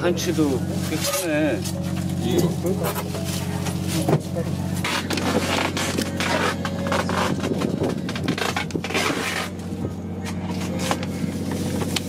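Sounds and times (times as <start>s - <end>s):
boat engine drone: 0.0s - 12.0s
fish scraping against plastic: 4.8s - 9.7s.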